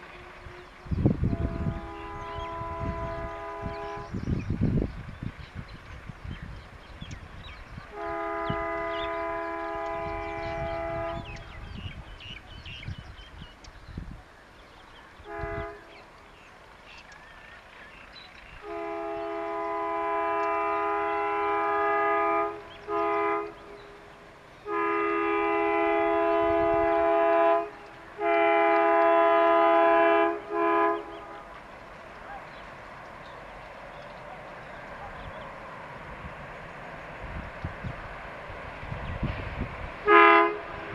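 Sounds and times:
locomotive air horn blasts: 0:00.1 - 0:04.2, 0:07.9 - 0:11.4, 0:15.2 - 0:15.9, 0:18.6 - 0:24.0, 0:24.6 - 0:31.4, 0:40.0 - 0:40.9.

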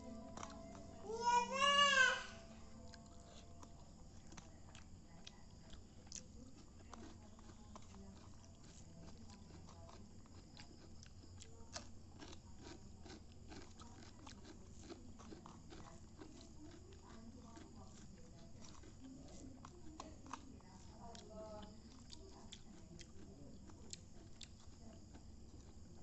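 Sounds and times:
low steady hum: 0:00.0 - 0:26.0.

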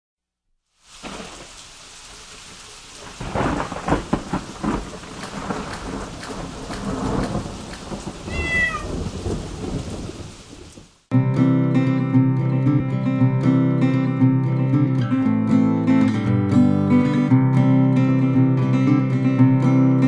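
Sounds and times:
rain pattering: 0:00.8 - 0:11.1
thunder rumbling: 0:01.0 - 0:11.0
cat meowing: 0:08.3 - 0:09.0.

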